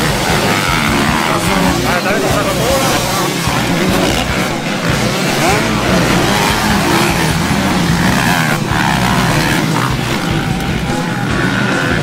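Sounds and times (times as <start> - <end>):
motocross bikes revving: 0.0 - 12.0.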